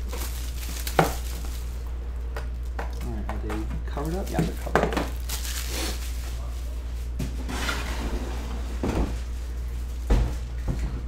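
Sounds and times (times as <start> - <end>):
plastic shrink wrap rustling: 0.0 - 2.0, 3.9 - 7.4, 8.6 - 10.6
steady low hum: 0.0 - 11.0.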